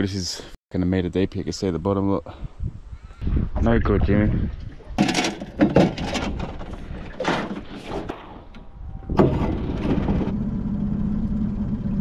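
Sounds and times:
scraping: 4.8 - 10.3
metal clunks against hull: 4.9 - 10.3.

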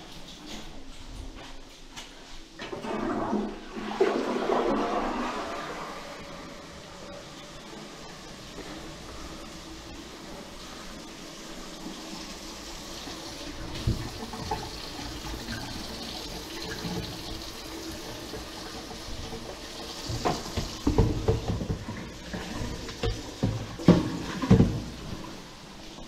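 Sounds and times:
faucet running into sink: 12.0 - 25.4
knocks and clunks: 20.1 - 25.0.

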